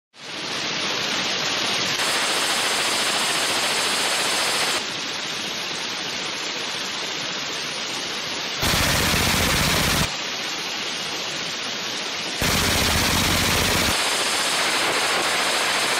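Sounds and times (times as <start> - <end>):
suppressed machine gun bursts: 8.6 - 10.1, 12.4 - 15.0.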